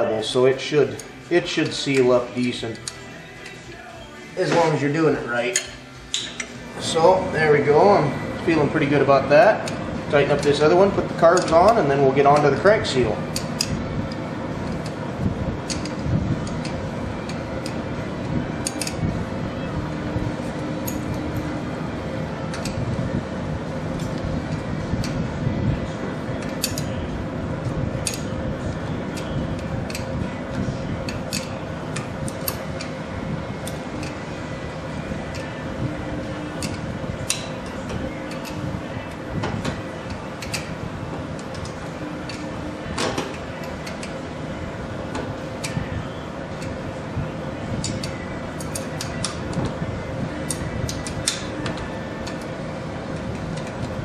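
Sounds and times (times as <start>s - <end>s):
steady low hum: 0.0s - 54.0s
wrench clicking and tapping: 15.7s - 17.8s, 18.6s - 19.0s, 26.4s - 26.9s, 28.0s - 28.2s, 29.9s - 30.1s, 31.3s - 31.5s, 36.6s - 37.5s, 40.4s - 40.7s, 47.8s - 49.4s.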